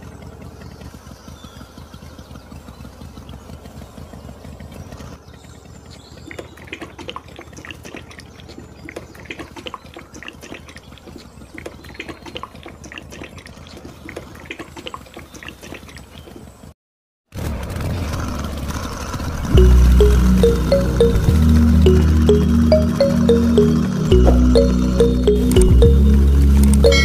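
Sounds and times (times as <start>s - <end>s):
low steady hum: 19.6s - 27.0s.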